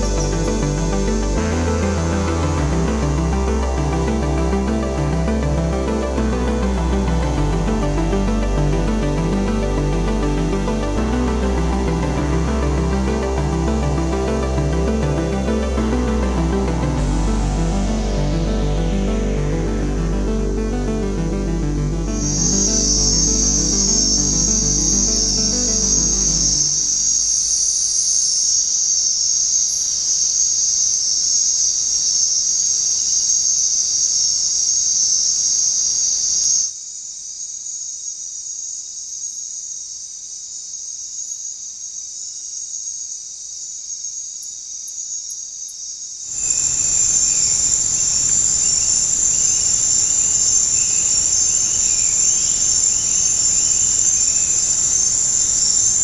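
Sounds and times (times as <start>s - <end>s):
insects trilling: 22.1s - 56.0s.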